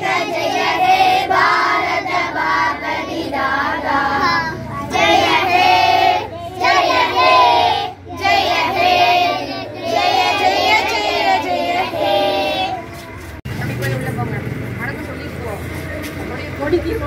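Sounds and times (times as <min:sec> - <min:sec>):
children singing in unison: 0:00.0 - 0:12.8.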